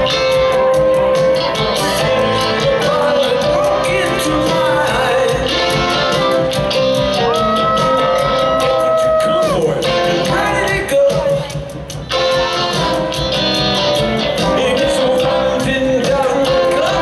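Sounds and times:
drum kit with cymbal beat: 0.0s - 17.0s
electric guitar: 0.0s - 17.0s
man singing: 1.0s - 6.6s, 7.2s - 11.8s, 14.2s - 17.0s.

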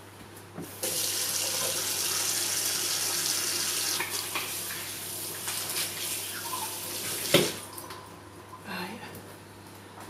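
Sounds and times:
tap running into sink: 7.0s - 7.6s.

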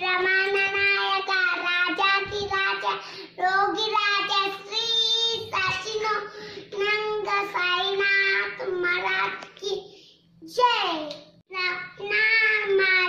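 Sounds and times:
child singing: 0.0s - 6.2s.

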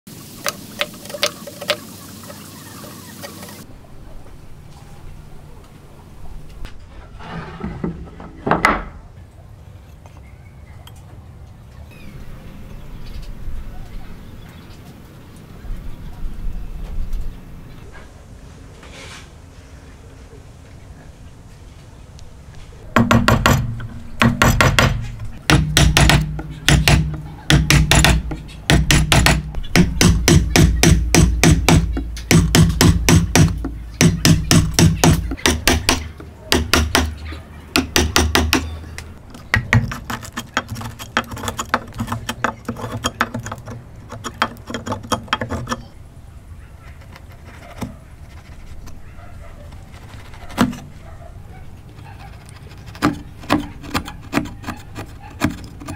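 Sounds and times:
chisel scraping wood: 7.2s - 8.6s, 23.0s - 37.2s, 39.3s - 46.0s, 46.8s - 49.1s, 49.7s - 50.9s, 52.0s - 55.9s
chisel knocking into wood: 23.0s - 38.7s, 39.5s - 45.8s.

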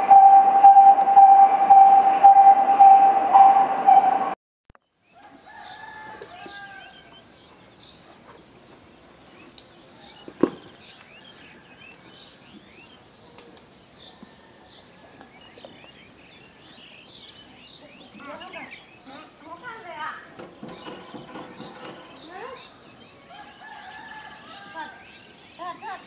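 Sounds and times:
loud steady tone: 0.0s - 4.4s
low drawn-out bird call: 0.0s - 4.4s
birds chirping and calling: 5.6s - 26.0s.

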